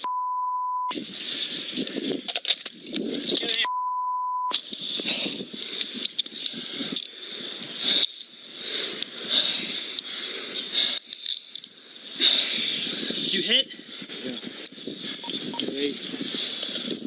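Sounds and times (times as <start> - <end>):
censor bleep: 0.0 - 0.9, 3.7 - 4.5.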